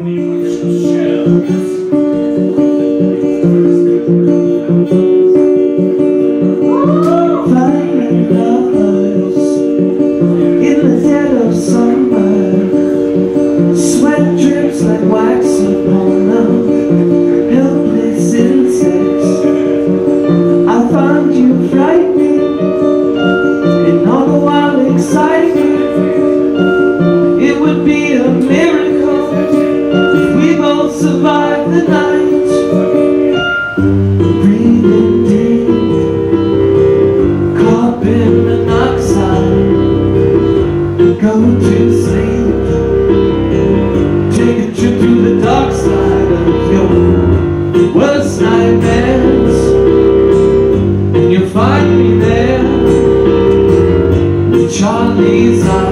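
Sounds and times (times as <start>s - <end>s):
acoustic guitars strumming: 0.0s - 55.9s
keyboard sustained chords: 0.0s - 55.9s
man singing: 0.0s - 55.9s
deep bass: 33.8s - 55.9s.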